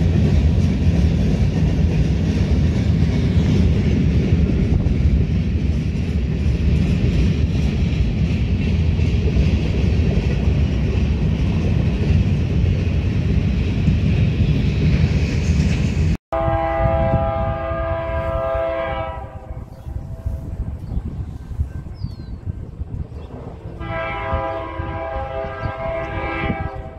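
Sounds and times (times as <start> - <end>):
freight train rolling on rails: 0.0 - 26.9
locomotive air horn: 16.3 - 20.6, 23.8 - 26.9.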